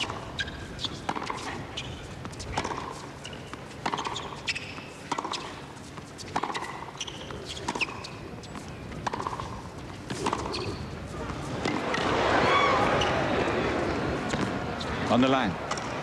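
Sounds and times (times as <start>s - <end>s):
racket striking tennis ball: 0.0s - 1.6s, 2.2s - 12.1s
shoe squeaks: 0.0s - 11.0s, 12.9s - 13.2s.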